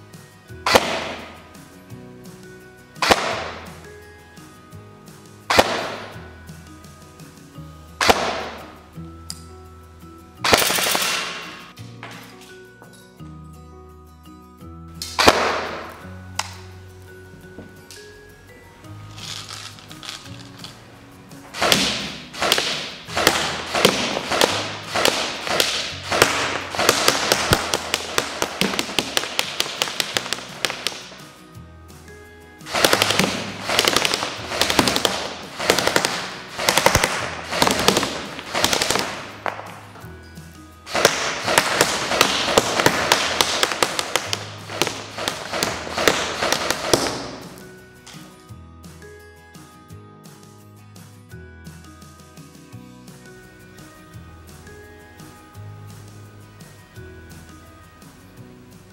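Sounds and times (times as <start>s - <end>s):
background music: 0.0s - 58.9s
pellets tapping paper target: 0.6s - 1.6s, 3.0s - 3.9s, 5.5s - 6.2s, 8.0s - 8.8s, 10.4s - 12.3s, 15.0s - 16.6s, 19.1s - 20.8s, 21.5s - 31.4s, 32.6s - 40.1s, 40.9s - 48.3s
airsoft gun shots: 0.7s - 1.4s, 3.0s - 3.8s, 5.5s - 6.2s, 8.0s - 8.8s, 10.4s - 11.7s, 15.1s - 16.6s, 21.5s - 31.2s, 32.7s - 40.0s, 40.9s - 47.6s.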